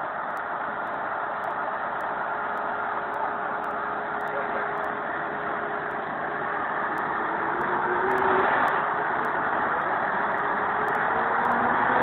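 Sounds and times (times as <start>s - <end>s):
tractor engine running: 0.0s - 7.8s.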